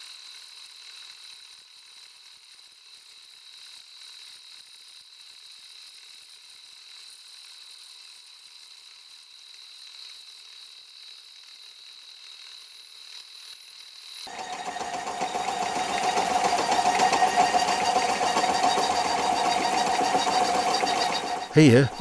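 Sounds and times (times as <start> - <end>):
milling saw cutting metal: 14.3 - 21.6.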